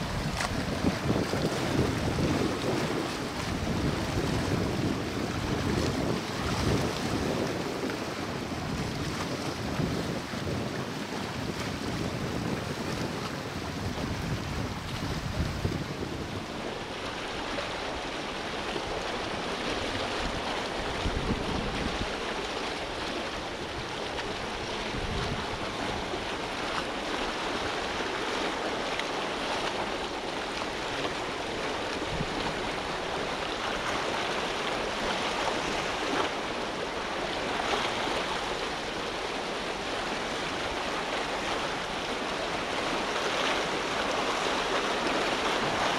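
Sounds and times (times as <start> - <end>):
wind buffeting microphone: 0.0 - 18.1, 18.7 - 28.0, 31.6 - 36.2
sea water and waves: 0.0 - 45.9.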